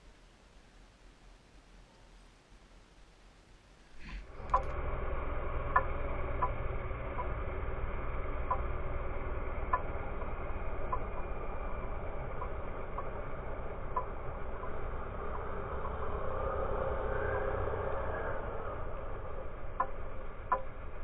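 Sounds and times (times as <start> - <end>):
snowmobile engine running: 4.0 - 21.0
light ticks: 8.2 - 16.9, 19.1 - 21.0.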